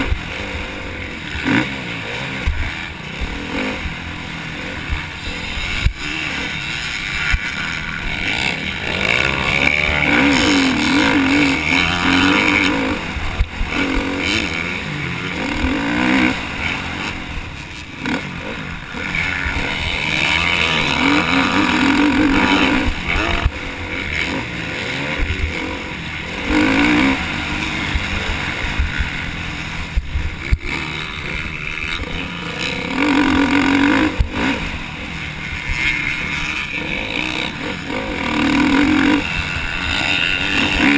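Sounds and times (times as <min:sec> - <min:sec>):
motocross bike engine revving: 0:00.0 - 0:40.9
wind rumble on microphone: 0:27.2 - 0:31.2.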